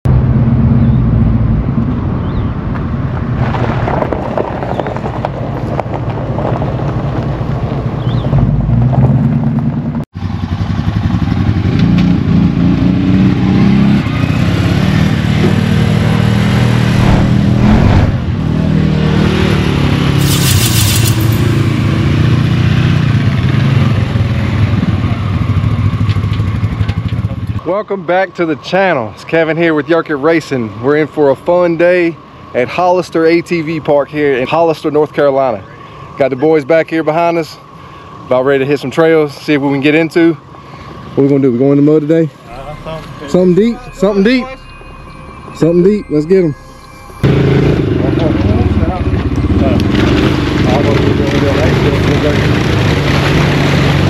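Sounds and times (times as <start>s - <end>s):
atv engines under throttle: 10.2s - 27.8s, 47.2s - 54.0s
short hiss: 20.2s - 21.6s.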